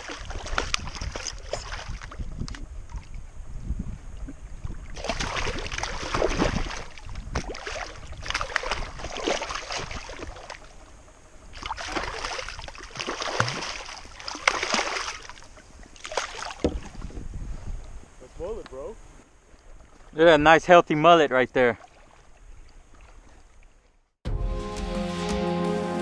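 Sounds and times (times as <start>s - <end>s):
water splashing and sloshing: 0.0s - 3.4s, 4.0s - 17.3s, 19.2s - 20.3s, 21.6s - 24.1s
low wind rumble on microphone: 0.0s - 13.5s, 16.6s - 19.2s.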